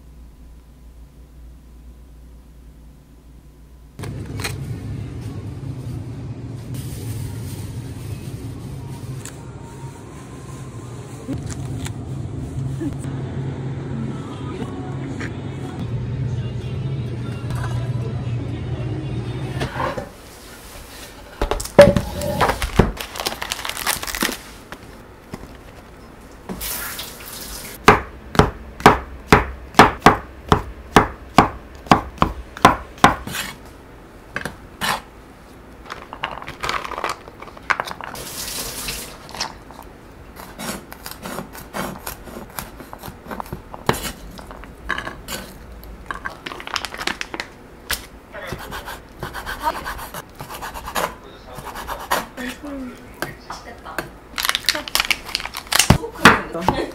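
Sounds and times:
knife chopping on wooden board: 0:27.8 - 0:33.6.

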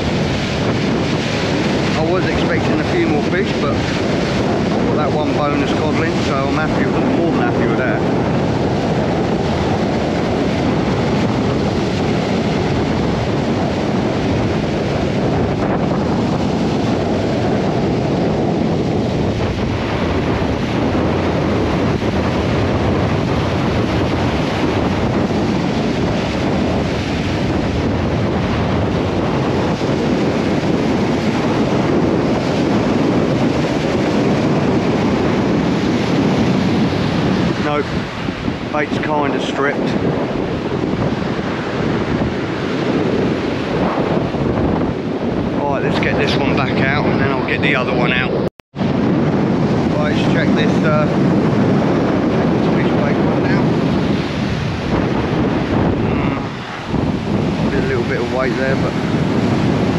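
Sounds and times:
surf breaking on beach: 0:00.0 - 0:59.9
wind buffeting microphone: 0:00.0 - 0:59.9.

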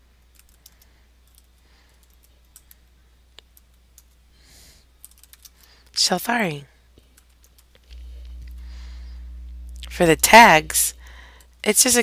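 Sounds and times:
faint keyboard typing: 0:00.2 - 0:04.3, 0:05.0 - 0:06.0, 0:07.0 - 0:08.0.

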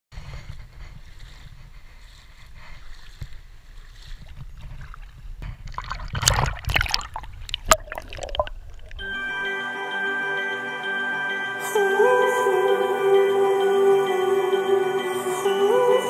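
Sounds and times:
feet splashing in shallow water: 0:00.4 - 0:09.0.

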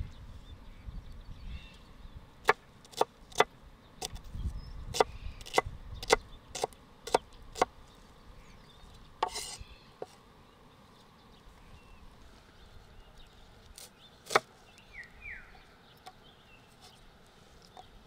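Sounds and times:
knife chopping on wooden board: 0:02.4 - 0:03.5, 0:04.9 - 0:07.7, 0:09.2 - 0:09.6, 0:14.3 - 0:14.5.

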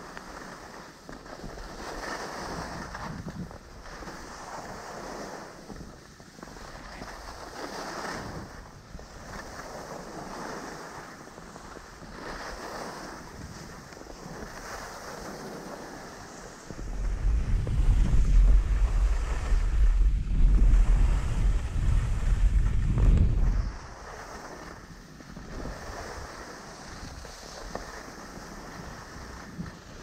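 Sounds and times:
skis scraping over snow: 0:00.0 - 0:30.0
wind buffeting microphone: 0:16.3 - 0:27.7.

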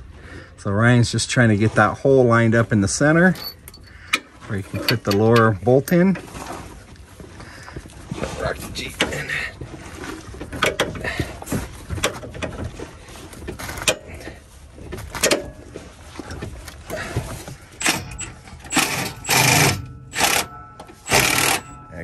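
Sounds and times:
car rocking on suspension: 0:03.1 - 0:22.0
scraping rattles: 0:08.4 - 0:22.0.

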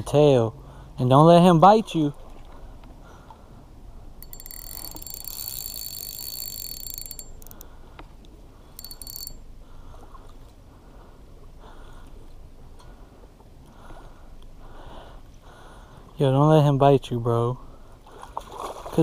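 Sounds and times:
fishing reel drag buzzing: 0:04.2 - 0:07.8, 0:08.8 - 0:09.4.

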